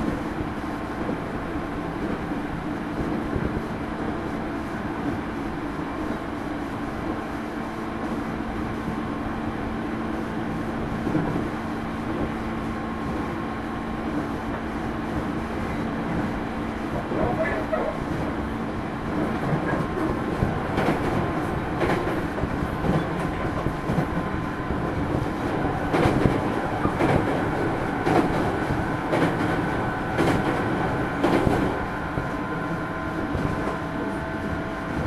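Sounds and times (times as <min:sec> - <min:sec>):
train wheels and motors rumbling: 0:00.0 - 0:35.0
rail-joint clacks: 0:16.9 - 0:18.4, 0:19.1 - 0:24.3, 0:24.9 - 0:32.6.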